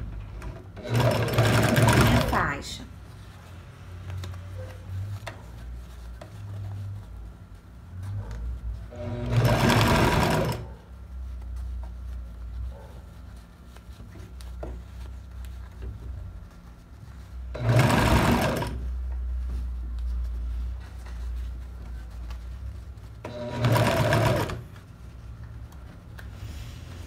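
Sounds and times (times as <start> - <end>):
sewing machine stitching: 0.4 - 2.6, 8.9 - 10.7, 17.5 - 18.8, 23.2 - 24.7.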